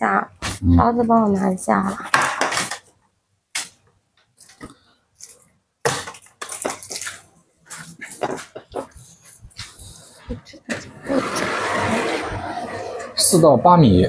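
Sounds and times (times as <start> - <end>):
gloved hands handling food: 3.6 - 10.0.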